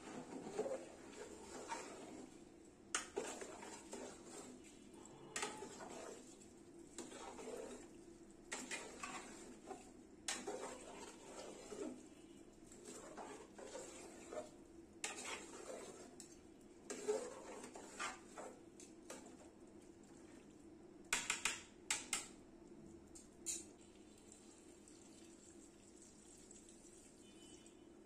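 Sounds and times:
metal spoon scraping pot: 0.0 - 2.4, 3.0 - 6.3, 7.0 - 7.9, 8.5 - 12.0, 12.7 - 19.2.

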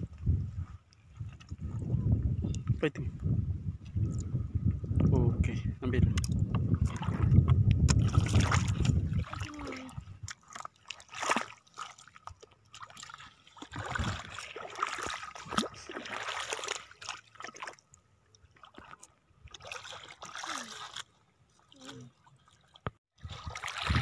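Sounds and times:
footsteps splashing in shallow water: 6.3 - 24.0.

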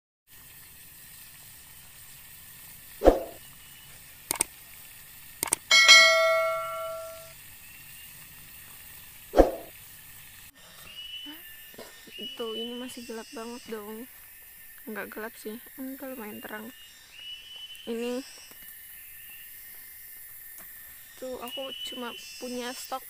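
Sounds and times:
faint steady hiss: 0.3 - 23.0
short clicks: 5.4 - 5.7
bright bell ding: 5.7 - 7.3.

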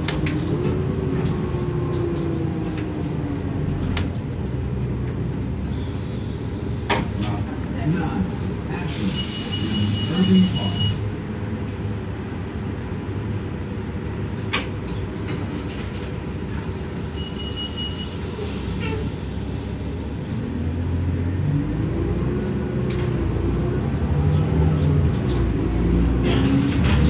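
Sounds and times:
bus diesel engine: 0.0 - 27.0.

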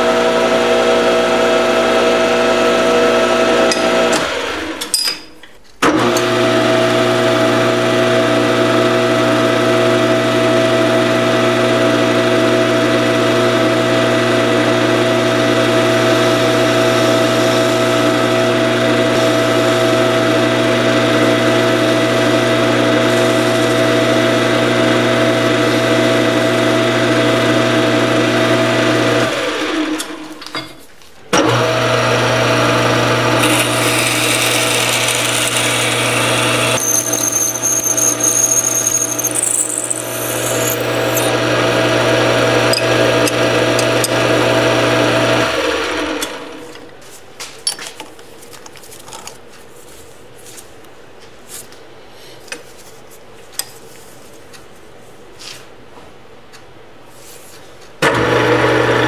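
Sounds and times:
lathe spinning down: 31.4 - 46.5
metal lathe running: 32.7 - 45.5
drill squealing: 33.4 - 41.4, 42.6 - 44.2.

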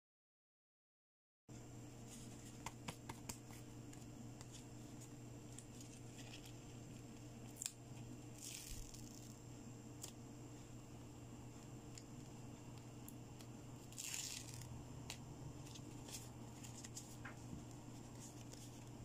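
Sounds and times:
paper sheet crinkling: 2.1 - 9.4, 13.8 - 19.0.

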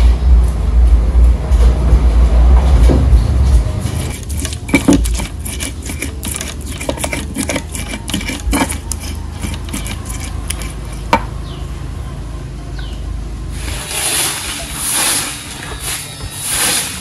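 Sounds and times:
stone pestle grinding in mortar: 3.8 - 11.4, 13.6 - 17.0
pestle knock: 3.9 - 11.4.

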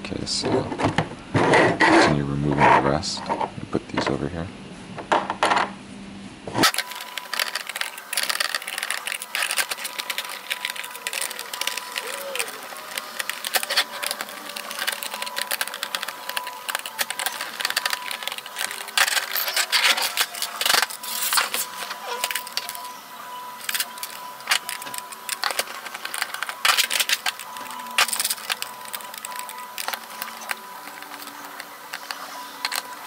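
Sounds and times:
plastic toy being handled: 6.6 - 33.0
screwdriver clicking on screws: 6.7 - 22.9, 23.6 - 33.0.

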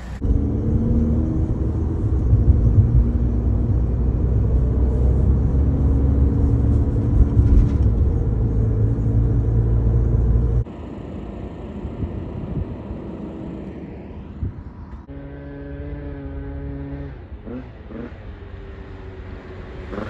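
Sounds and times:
car cabin road rumble: 0.0 - 15.2.

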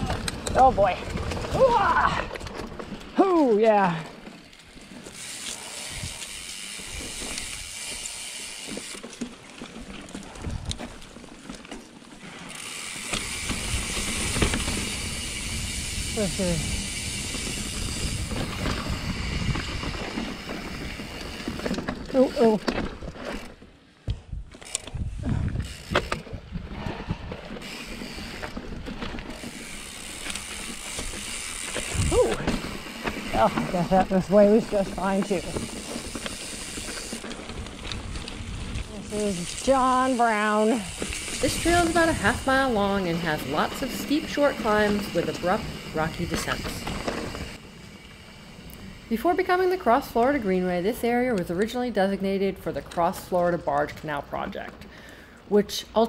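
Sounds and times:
bike tyres hissing on dirt: 5.0 - 9.0, 12.2 - 21.6, 25.1 - 49.6
freehub ratchet buzzing: 5.1 - 9.0, 12.5 - 19.7, 29.3 - 33.4, 35.4 - 37.3
bike knocks and rattles: 13.0 - 15.4.

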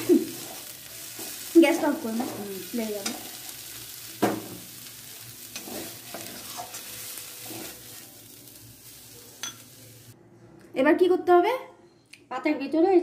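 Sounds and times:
food sizzling in oil: 0.0 - 10.2
spatula scraping metal pan: 5.5 - 8.0.

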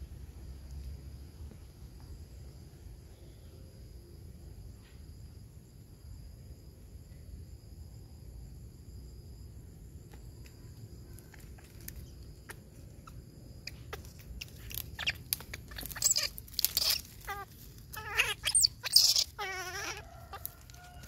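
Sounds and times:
insects chirring: 0.0 - 21.0
warbling animal calls: 12.4 - 20.8
dry palm fronds rustling: 13.9 - 21.0.

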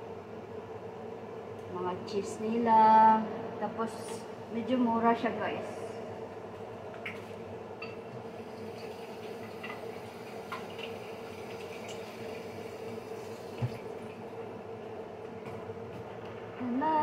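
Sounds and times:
steady background hum: 0.0 - 17.0
tap water running into sink: 8.5 - 14.0.

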